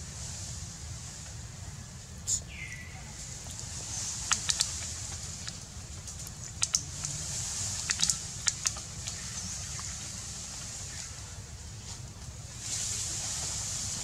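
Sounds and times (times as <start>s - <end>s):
steady high hiss: 0.0s - 14.0s
sharp clicks and crackles: 3.5s - 9.9s.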